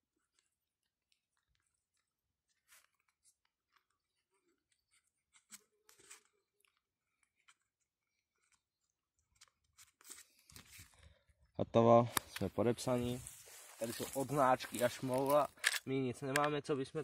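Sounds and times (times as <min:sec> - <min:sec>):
paper rustling: 0:12.4 - 0:15.6.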